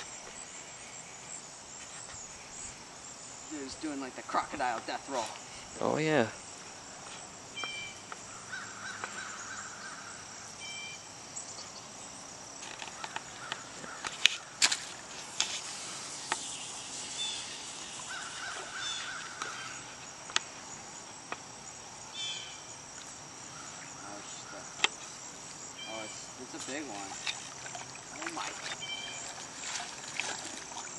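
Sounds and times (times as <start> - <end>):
high insect drone: 0.0 - 30.9
birds calling: 3.5 - 12.0, 12.7 - 15.1, 15.7 - 20.6, 23.4 - 30.9
harsh rasping bird calls: 7.6 - 10.9, 15.7 - 20.0, 25.8 - 30.0.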